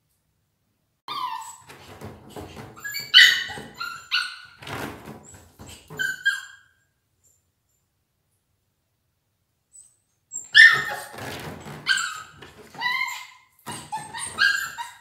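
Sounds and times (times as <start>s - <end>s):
puppy yipping: 1.1s - 1.8s, 2.8s - 4.7s, 5.6s - 6.8s, 9.8s - 15.0s.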